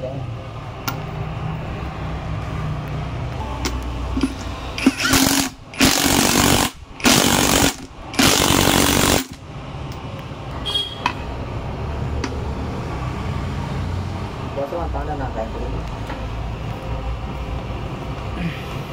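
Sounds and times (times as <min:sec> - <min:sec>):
impact wrench hammering: 0:03.6 - 0:10.0.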